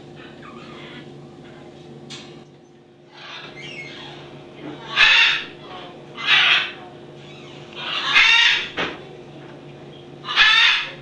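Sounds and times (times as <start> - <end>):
parrot chicks calling: 0.2 - 1.1, 3.1 - 8.8, 10.2 - 11.0.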